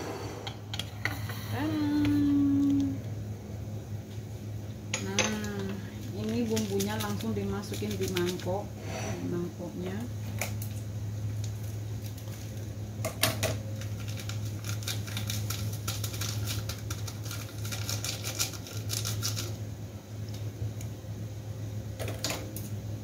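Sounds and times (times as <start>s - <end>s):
plastic crinkling: 13.8s - 19.6s
plastic sachet tearing: 13.8s - 19.6s.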